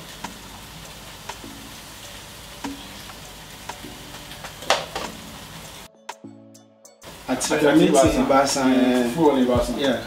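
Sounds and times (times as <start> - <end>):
meat sizzling in a wok: 0.0 - 5.9
utensil tapping pan: 0.1 - 5.8.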